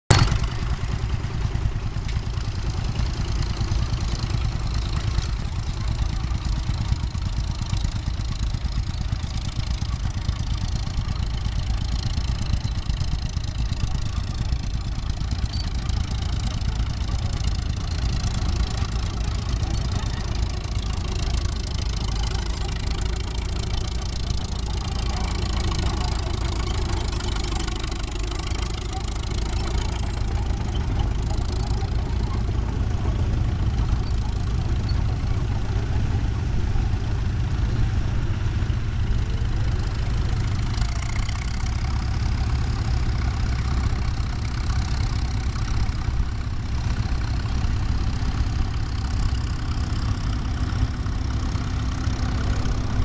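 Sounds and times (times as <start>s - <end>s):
crawler tractor engine under load: 0.0s - 53.0s.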